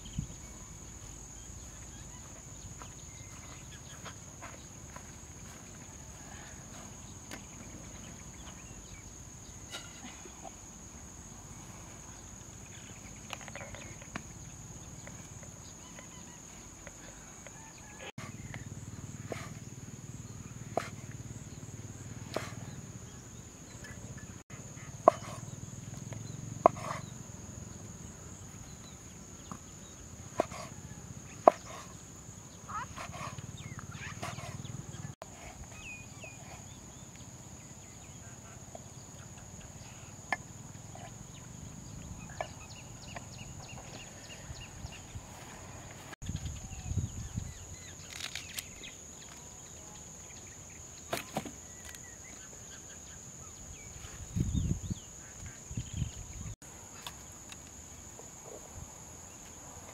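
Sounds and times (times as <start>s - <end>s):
cleaver chopping on wooden board: 25.1s - 25.4s, 26.7s - 27.0s, 31.5s - 31.7s.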